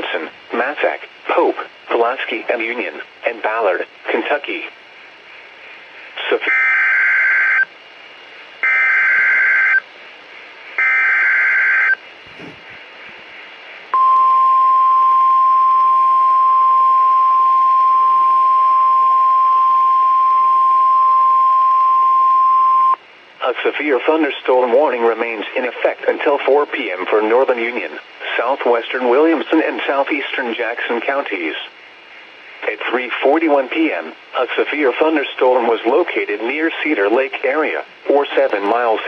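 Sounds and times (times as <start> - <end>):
steady warning alarm tone: 6.5 - 7.7, 8.6 - 9.8, 10.8 - 12.0.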